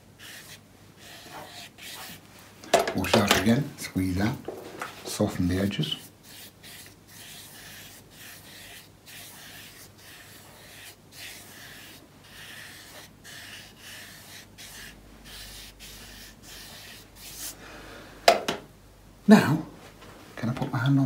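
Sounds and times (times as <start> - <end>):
brush rubbing over paper: 0.0 - 2.6, 4.5 - 17.6.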